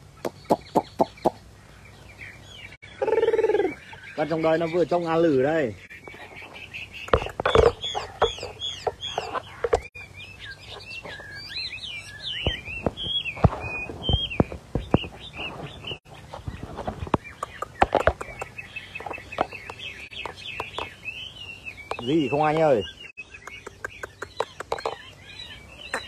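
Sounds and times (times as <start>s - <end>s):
bird singing whistled notes: 2.1s - 16.6s, 17.2s - 26.0s
sharp clicks and knocks: 7.0s - 9.9s, 16.4s - 20.9s, 23.4s - 25.0s.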